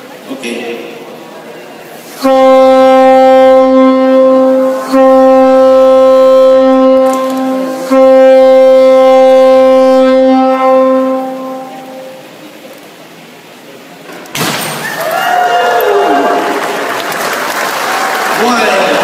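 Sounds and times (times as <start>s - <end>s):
ship's horn blasts: 2.2s - 12.4s.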